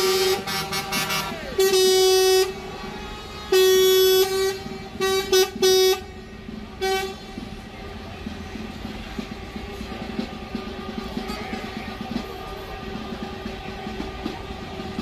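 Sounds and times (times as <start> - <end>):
truck horn honking: 0.0 - 7.4
traffic noise: 0.0 - 15.0.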